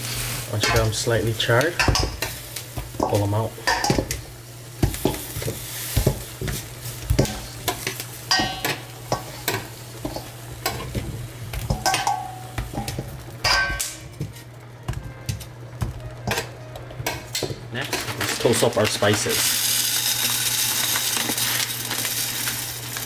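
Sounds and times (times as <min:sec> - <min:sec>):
clanks in metal bowl: 0:11.7 - 0:14.0.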